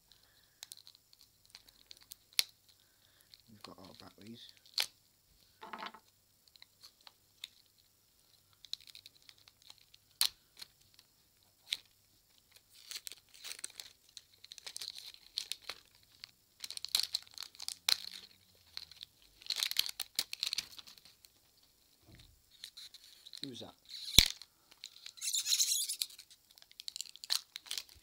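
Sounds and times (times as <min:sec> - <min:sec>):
packaging tearing and rustling: 0:12.5 - 0:21.3, 0:22.5 - 0:28.0.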